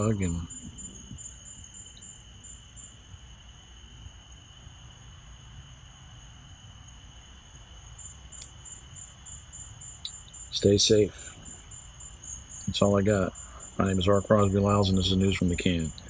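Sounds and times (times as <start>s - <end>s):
insect chirring: 0.0s - 16.0s.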